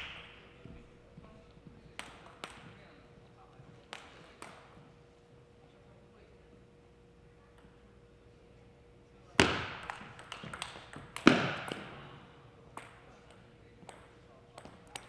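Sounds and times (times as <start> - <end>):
ping pong ball clicking: 9.8 - 11.9, 12.7 - 15.0.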